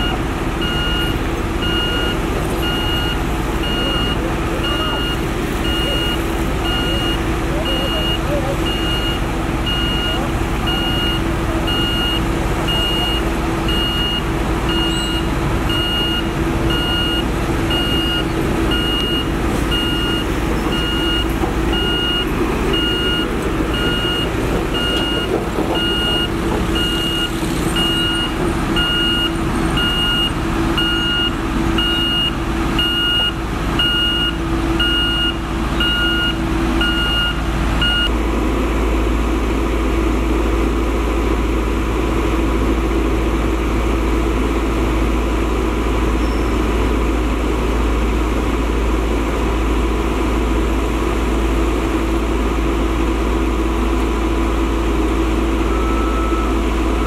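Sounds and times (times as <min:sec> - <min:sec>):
reversing alarm beeping: 0:00.0 - 0:38.1, 0:55.6 - 0:57.0
diesel engine drone: 0:00.0 - 0:57.0.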